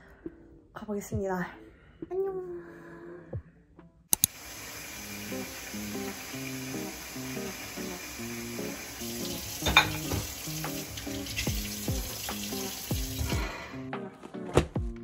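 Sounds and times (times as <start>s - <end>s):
soft background music with beat: 0.0s - 4.2s, 6.0s - 15.0s
tap running into a metal sink: 9.0s - 13.4s
dish clinking: 9.2s - 10.6s.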